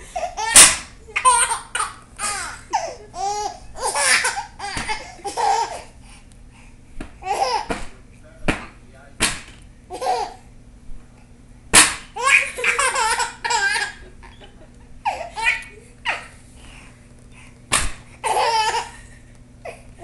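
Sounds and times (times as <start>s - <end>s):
baby laughing and squealing: 0.1s - 5.9s, 12.2s - 14.4s, 15.0s - 16.4s, 18.2s - 19.0s.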